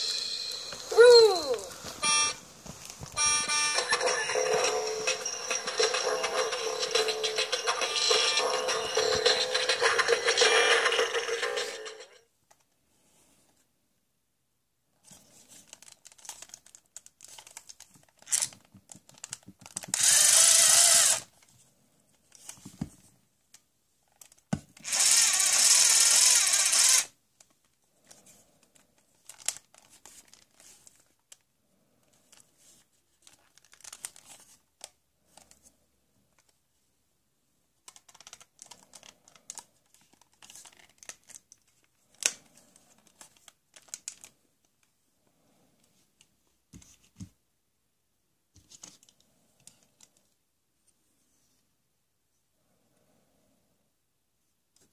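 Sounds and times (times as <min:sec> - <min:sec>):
toy power screwdriver whirring: 0:19.8 - 0:21.3, 0:24.8 - 0:27.1.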